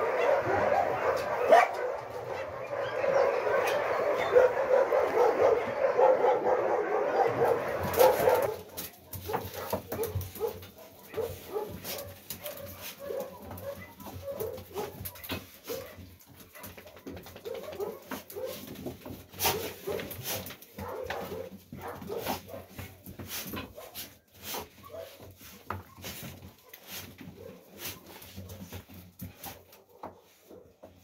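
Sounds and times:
dogs yipping and whimpering: 0.0s - 16.7s
many dogs barking: 0.0s - 23.0s, 23.6s - 25.4s, 29.6s - 31.0s.

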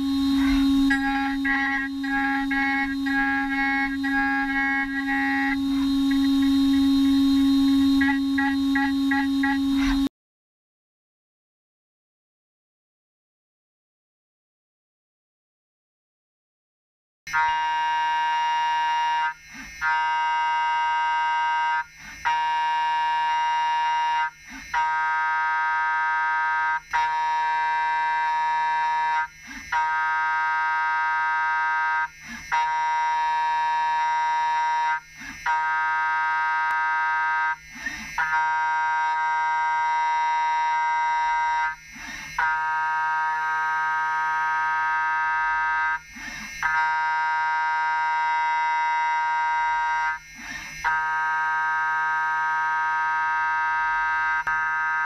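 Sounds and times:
milling machine high-pitched whine: 0.0s - 10.1s, 17.6s - 51.2s.

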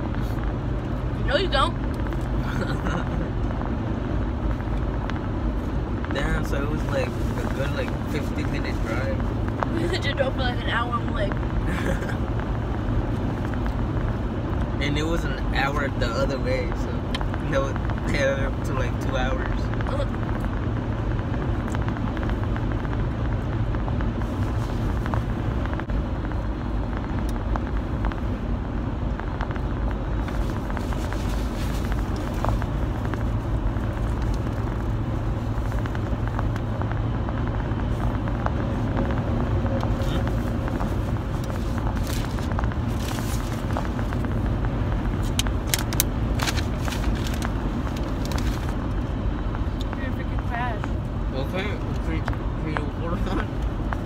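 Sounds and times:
road and engine rumble in car: 0.0s - 54.0s
rustling: 30.2s - 36.1s, 39.9s - 44.5s, 45.1s - 48.8s.

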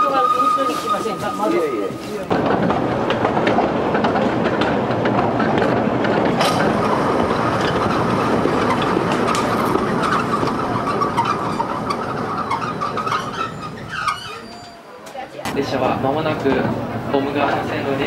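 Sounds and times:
wheels squealing on curve: 0.0s - 2.3s, 6.5s - 15.0s
train wheels rumbling and rattling: 0.0s - 18.0s.

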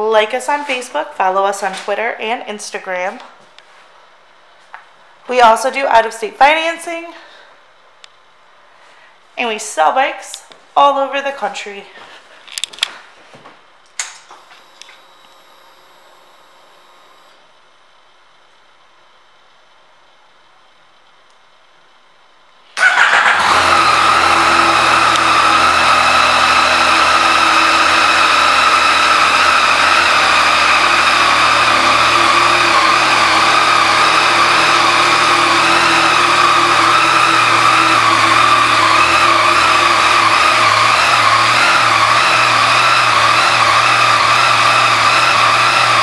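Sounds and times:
motorcycle engine starting and idling: 22.7s - 46.0s.

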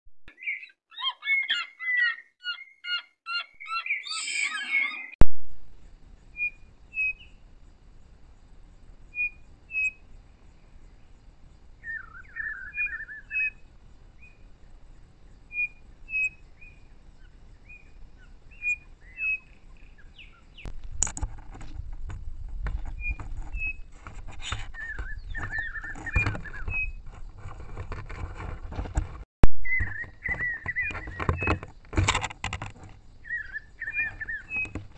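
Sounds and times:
bird trill: 0.3s - 5.2s, 6.3s - 7.4s, 9.1s - 10.1s, 11.8s - 14.4s, 15.4s - 20.7s, 24.5s - 27.0s, 29.6s - 31.7s, 33.2s - 34.9s
birds chirping: 0.3s - 20.8s, 22.8s - 28.1s, 29.6s - 31.9s, 32.5s - 34.9s.

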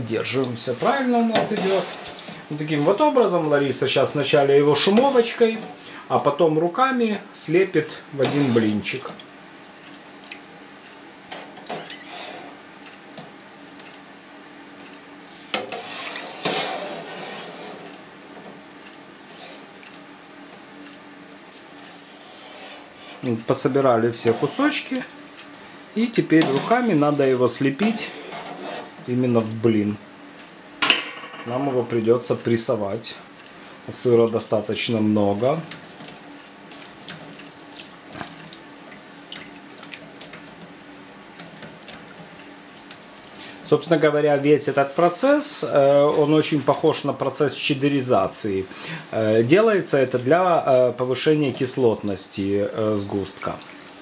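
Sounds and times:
skimmer scraping curds in a pan: 0.3s - 5.9s, 8.2s - 9.1s, 11.3s - 12.6s, 15.3s - 18.0s, 19.2s - 20.0s, 21.5s - 25.5s, 26.1s - 29.2s
whey sloshing: 0.6s - 5.9s, 21.6s - 29.2s, 34.0s - 46.7s, 53.0s - 54.0s.

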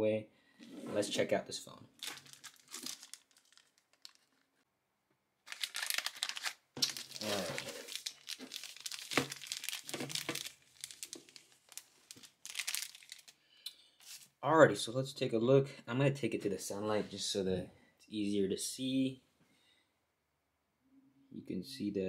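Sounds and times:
plastic bag crinkling: 1.9s - 4.6s, 5.4s - 13.4s, 14.0s - 14.3s.

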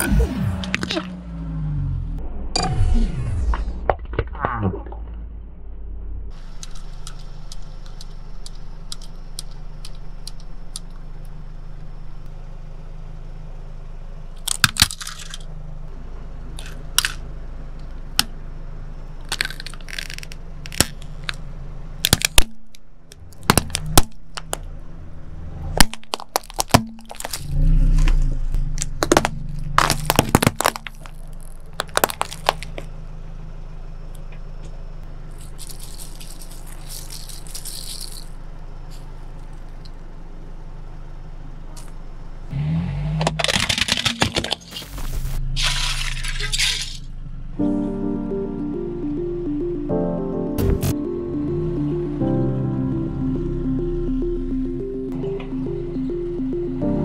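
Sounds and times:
car engine humming: 0.0s - 4.2s, 4.9s - 57.0s
plastic cracking under tyre: 14.4s - 15.5s, 19.2s - 21.4s, 22.0s - 24.7s, 25.8s - 32.9s, 43.2s - 44.8s.

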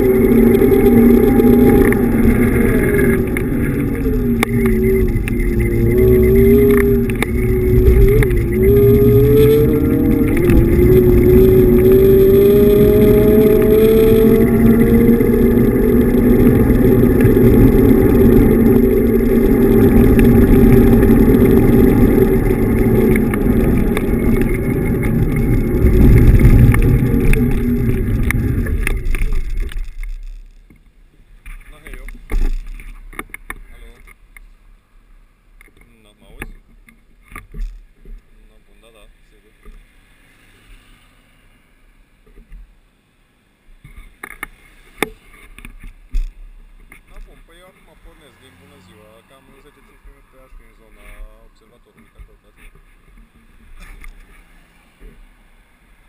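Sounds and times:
electric motor whine: 0.0s - 30.2s
wind rumble on microphone: 0.0s - 30.8s
road noise: 0.0s - 56.0s.

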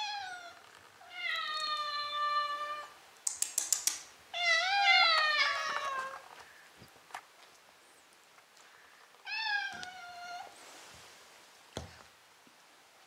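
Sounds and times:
cats meowing: 0.0s - 3.0s, 4.4s - 6.4s, 9.2s - 10.6s
sharp clicks: 3.2s - 4.1s.

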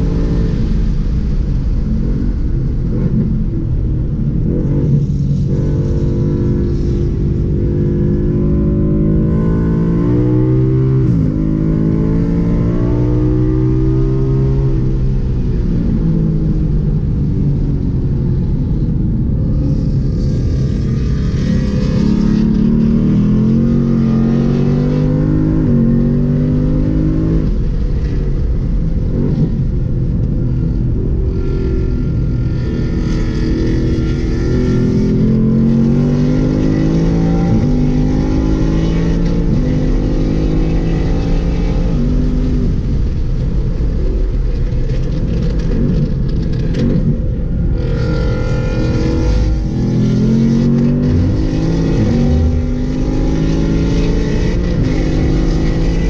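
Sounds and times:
sports car engine revving: 19.6s - 28.4s, 30.6s - 43.2s, 44.0s - 56.0s.

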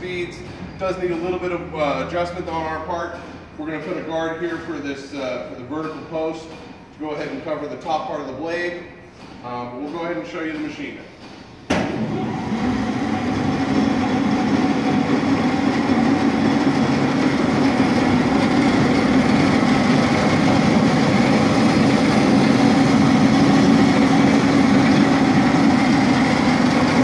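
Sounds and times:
bandsaw motor humming: 11.9s - 27.0s.

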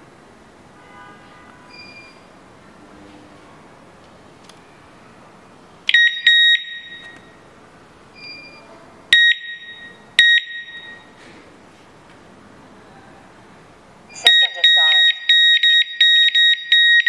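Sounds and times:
alarm siren beeps: 5.9s - 7.4s, 8.2s - 11.2s, 14.1s - 17.0s
faint beep of different pitch: 14.1s - 15.8s.

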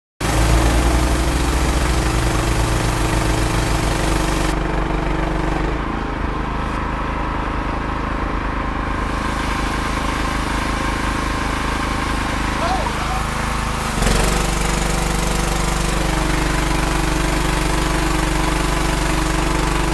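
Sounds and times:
water jet hissing on concrete: 0.2s - 4.6s, 8.9s - 19.9s
pressure washer engine running: 0.2s - 19.9s.

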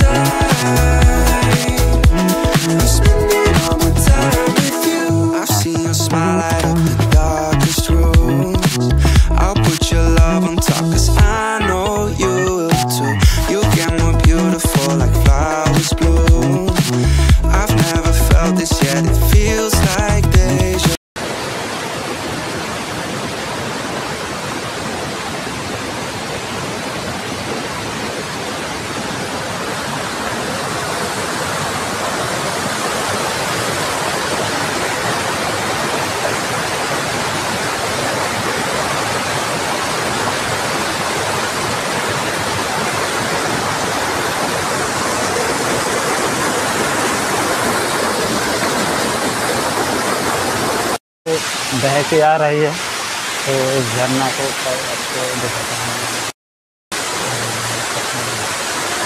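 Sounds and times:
water rushing over boulders: 0.0s - 59.0s.

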